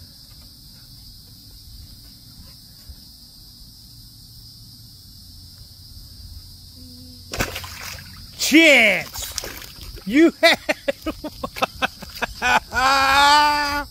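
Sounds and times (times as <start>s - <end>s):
high-pitched insect drone: 0.0s - 13.9s
loud water splash: 7.3s - 10.1s.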